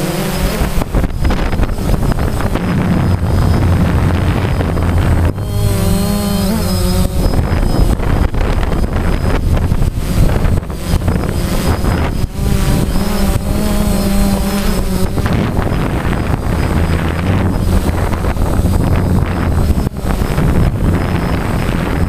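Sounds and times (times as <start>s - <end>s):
drone motors buzzing: 0.0s - 22.0s
wind buffeting microphone: 0.0s - 22.0s.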